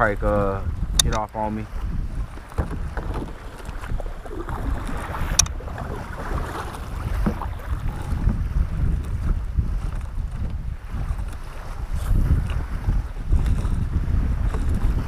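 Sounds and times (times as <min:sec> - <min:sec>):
wind rumbling on microphone: 0:00.0 - 0:15.0
water splashing: 0:02.2 - 0:08.2.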